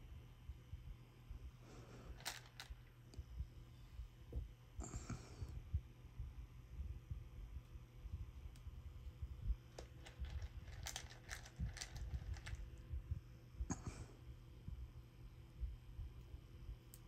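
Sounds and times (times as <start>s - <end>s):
low rumble of handling: 0.8s - 14.0s
plastic beads clicking and rattling: 2.2s - 2.9s, 9.7s - 12.6s.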